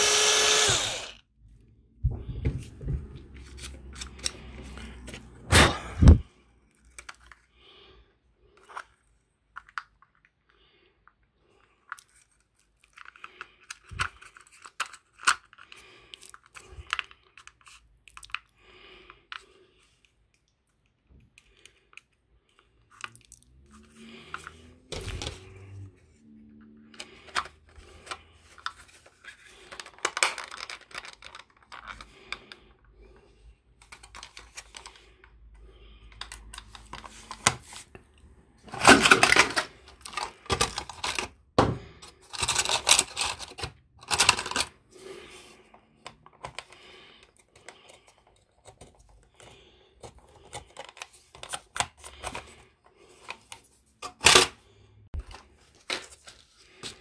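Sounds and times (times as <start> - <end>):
plastic parts clicking and rattling: 8.6 - 10.4, 11.8 - 18.5, 26.9 - 32.6, 33.8 - 35.4, 36.1 - 38.0, 38.7 - 44.8, 46.0 - 54.6.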